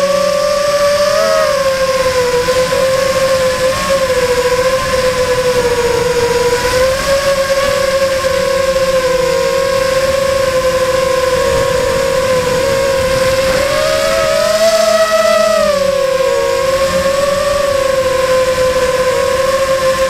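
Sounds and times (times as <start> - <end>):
electric motor and propeller whine: 0.0 - 20.0
rushing air noise: 7.7 - 19.4.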